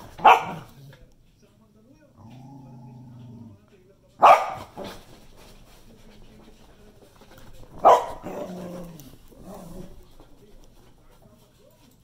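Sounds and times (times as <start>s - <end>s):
dog barking: 0.1s - 0.7s, 4.2s - 4.9s, 7.8s - 8.6s
dogs play-fighting: 4.2s - 12.0s.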